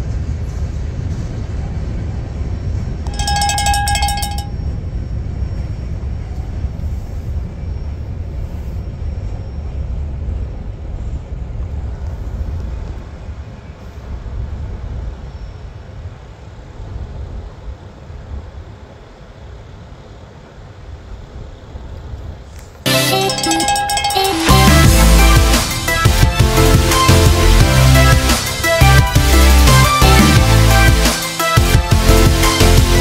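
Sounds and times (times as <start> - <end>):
freight train rolling by: 0.0 - 12.0, 18.6 - 33.0
high-pitched tone: 3.1 - 4.5, 22.9 - 33.0.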